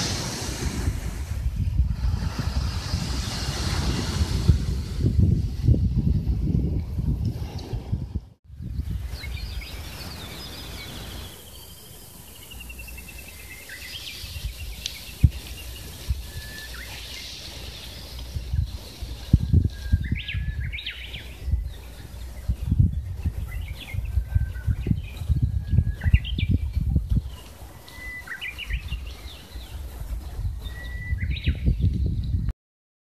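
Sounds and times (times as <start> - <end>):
low gusty rumble: 0.0 - 11.1, 14.2 - 27.8
birds singing and calling: 8.6 - 32.5.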